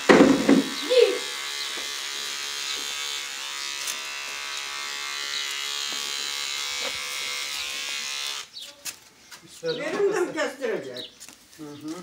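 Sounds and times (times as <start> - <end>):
electric hair clippers buzzing: 0.0 - 8.5.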